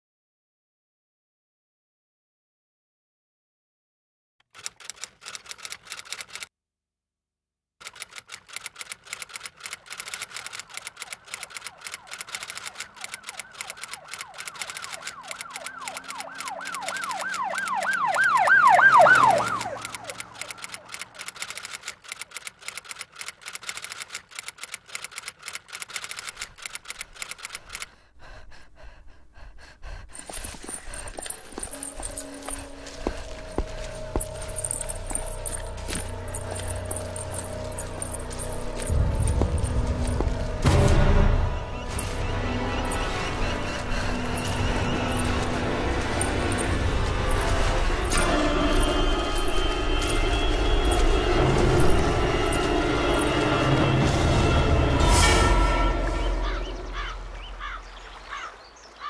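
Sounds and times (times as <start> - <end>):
typewriter keys clicking: 4.4 - 6.5, 7.8 - 18.4, 19.4 - 27.9, 31.0 - 40.3.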